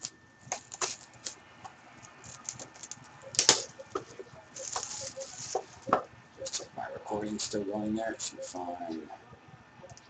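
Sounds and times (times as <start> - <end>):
plastic shrink-wrap crinkling: 0.0 - 1.4, 2.0 - 3.8, 4.5 - 6.7.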